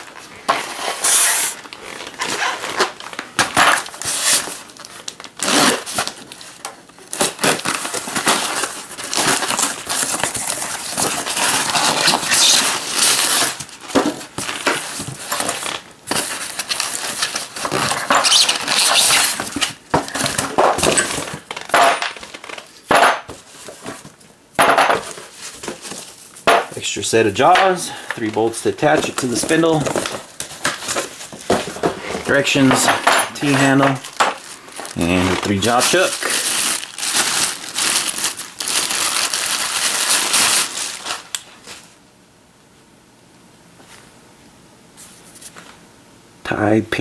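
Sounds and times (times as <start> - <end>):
cardboard and styrofoam being pulled apart: 0.5 - 6.5, 7.1 - 13.8, 14.4 - 21.5, 34.1 - 41.8.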